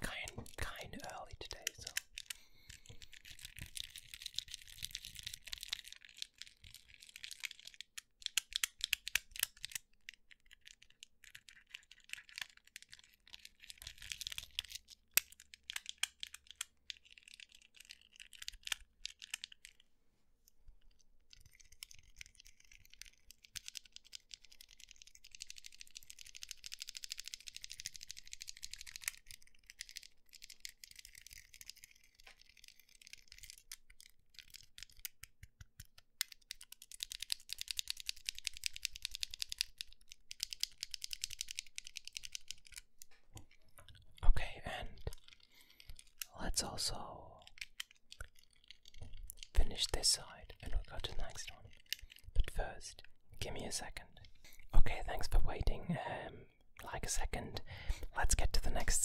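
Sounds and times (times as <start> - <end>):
plastic fidget toy clicking: 1.6 - 9.8, 10.4 - 19.8, 21.4 - 42.9.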